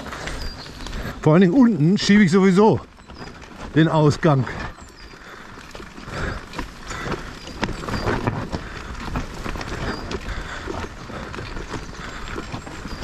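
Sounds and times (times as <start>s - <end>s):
bike rattling: 0.0s - 13.0s
bike tyres on dirt trail: 0.0s - 13.0s
knocks and clicks over bumps: 0.0s - 13.0s.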